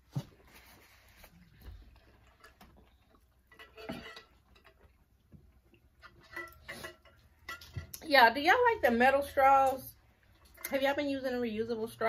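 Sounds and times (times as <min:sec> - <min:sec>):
soft rustles of napkins: 0:00.0 - 0:02.3.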